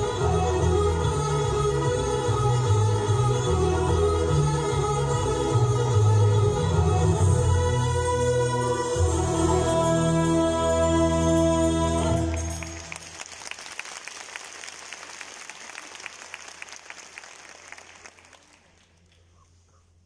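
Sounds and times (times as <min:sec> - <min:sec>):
audience applause: 0:12.3 - 0:19.3.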